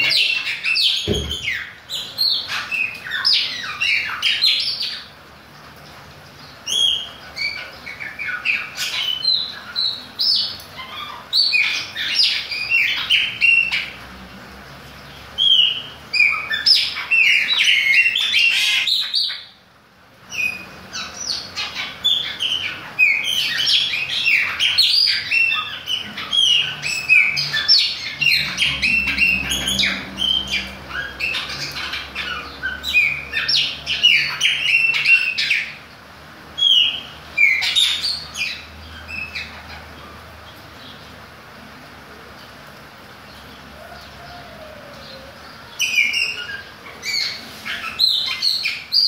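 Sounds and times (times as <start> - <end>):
blackbird singing: 0.0 - 5.2, 6.4 - 14.0, 15.0 - 19.6, 20.3 - 35.9, 36.6 - 40.2, 43.2 - 49.0.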